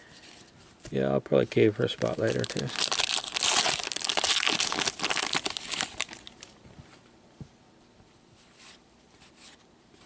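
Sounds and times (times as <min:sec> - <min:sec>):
cards rustling and ticking: 0:01.8 - 0:06.6
wrapper crinkling: 0:02.0 - 0:06.6.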